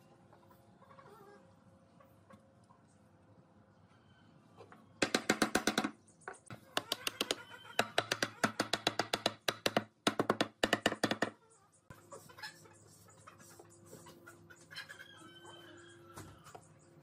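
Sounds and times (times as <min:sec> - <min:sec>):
wooden mallet tapping wooden tabletop: 0:05.0 - 0:05.9, 0:06.8 - 0:11.3.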